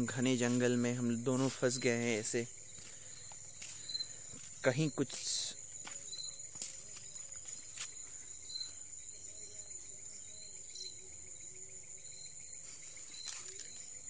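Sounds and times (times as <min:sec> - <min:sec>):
crickets chirring: 0:00.0 - 0:14.0.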